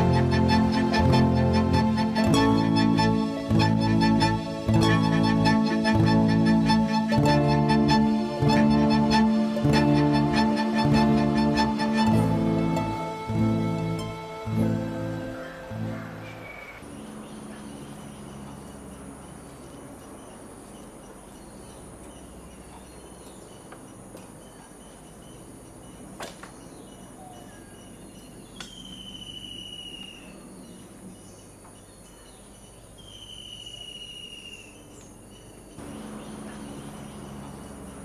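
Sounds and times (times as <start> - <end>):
insect chorus: 15.3 - 38.0
long falling whistled calls: 28.6 - 30.4, 33.0 - 34.9.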